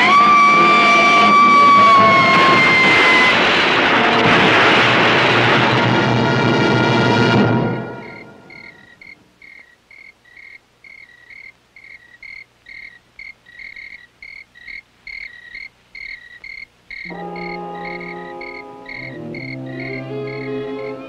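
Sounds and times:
crickets chirping: 7.8s - 21.0s
low sustained music: 17.1s - 21.0s.

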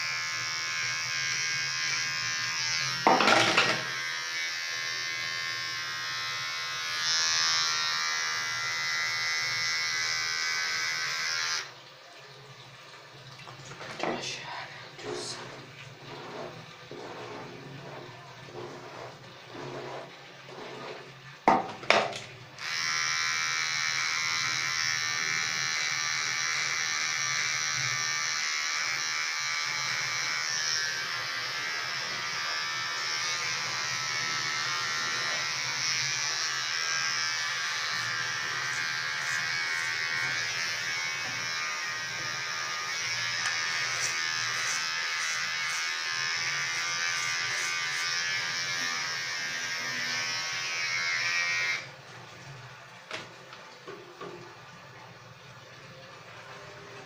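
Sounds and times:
electric hair trimmer buzzing: 0.0s - 11.7s, 21.5s - 51.9s.

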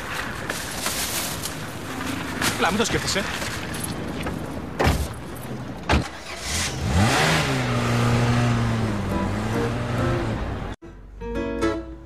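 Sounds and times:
car engine starting and revving: 6.0s - 10.8s.

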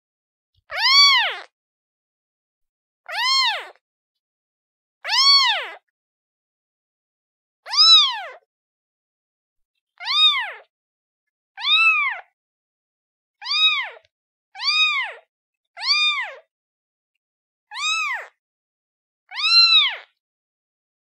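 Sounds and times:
kitten meowing: 0.7s - 1.5s, 3.1s - 3.8s, 5.1s - 5.8s, 7.7s - 8.4s, 10.0s - 10.7s, 11.6s - 12.3s, 13.4s - 15.2s, 15.8s - 16.5s, 17.7s - 18.4s, 19.3s - 20.1s.

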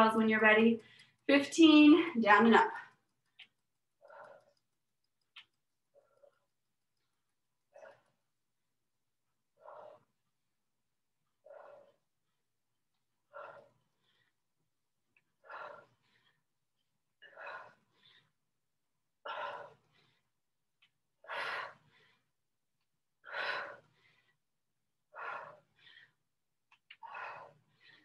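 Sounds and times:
person breathing hard: 3.4s - 4.7s, 9.5s - 10.3s, 11.4s - 12.1s, 13.2s - 14.6s, 15.2s - 16.6s, 17.2s - 18.5s, 19.2s - 20.4s, 21.2s - 22.4s, 23.2s - 24.5s, 25.1s - 26.3s, 26.9s - 28.0s.

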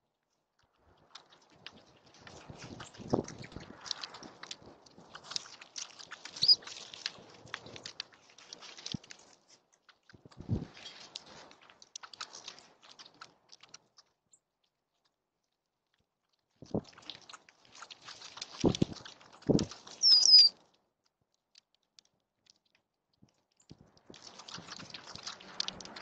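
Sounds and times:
high falling whistled bird call: 20.0s - 20.5s.

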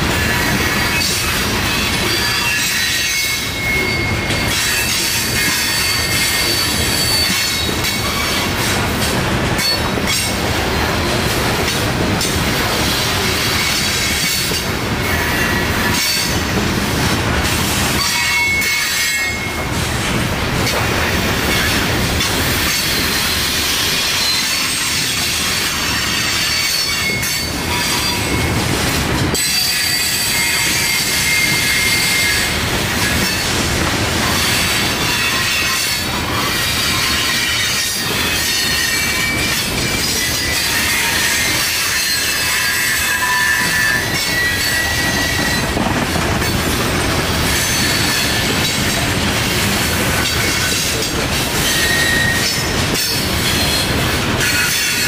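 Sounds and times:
train wheels rumbling and rattling: 0.0s - 55.0s
high-pitched wheel squeals: 0.3s - 8.5s, 34.4s - 45.8s, 51.6s - 52.7s.

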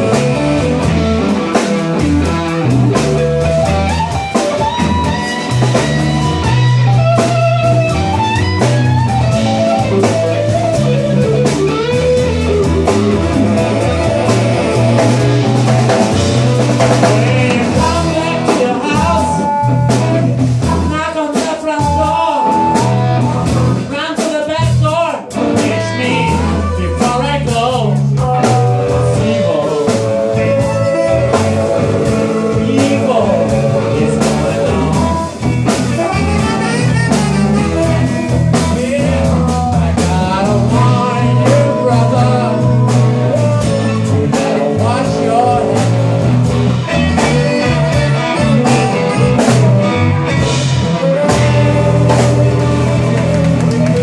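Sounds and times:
saxophone: 0.0s - 21.0s, 25.3s - 54.0s
live blues band playing: 0.0s - 54.0s
harmonica: 28.5s - 53.5s.

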